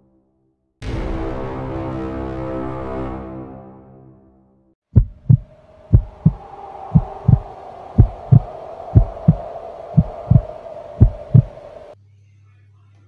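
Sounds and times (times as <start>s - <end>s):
heartbeat double thumps: 5.0s - 9.4s, 10.0s - 11.6s
steady droning tone: 5.4s - 12.0s.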